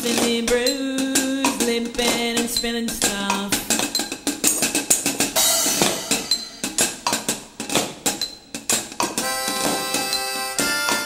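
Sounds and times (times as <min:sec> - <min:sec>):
drum kit with cymbals: 0:00.0 - 0:11.0
harmonica chords: 0:05.4 - 0:07.1, 0:09.2 - 0:11.0.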